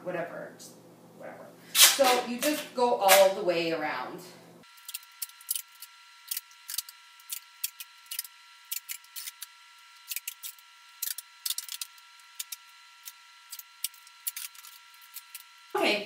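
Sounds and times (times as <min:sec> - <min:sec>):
duct tape crackling and ripping: 0:01.8 - 0:03.3, 0:04.7 - 0:15.7.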